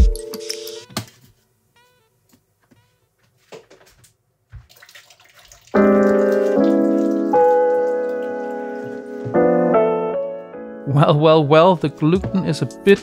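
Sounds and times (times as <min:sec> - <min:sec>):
piano chords: 0:05.8 - 0:13.0.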